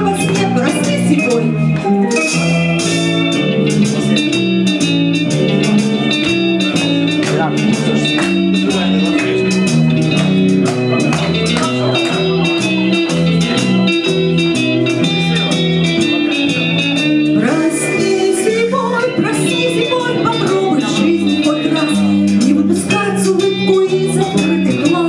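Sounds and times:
woman singing: 0.0s - 1.7s, 17.4s - 25.0s
pop backing track: 0.0s - 25.0s.

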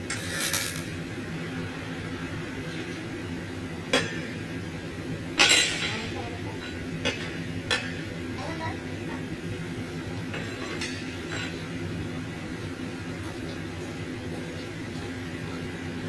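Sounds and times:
arc welding bursts: 0.0s - 1.0s
steady low hum: 0.0s - 16.0s.

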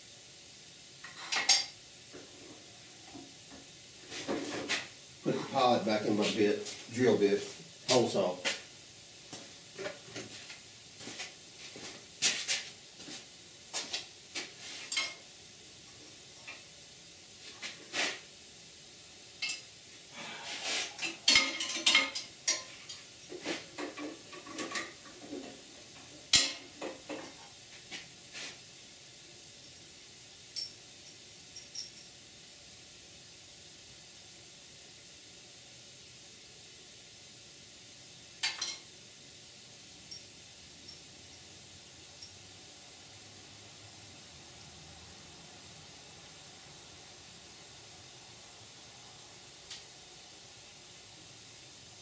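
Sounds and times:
metallic clicks and clinks of tools: 14.9s - 15.2s, 19.4s - 19.7s, 30.6s - 32.1s, 40.1s - 41.1s.

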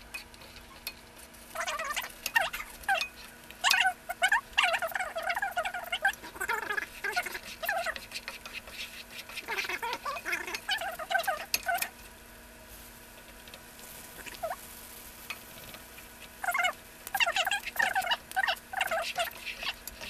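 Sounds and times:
peanuts scraping against pan: 0.1s - 12.0s, 12.8s - 20.0s
spatula squeaking on pan: 1.6s - 11.9s, 16.3s - 20.0s.

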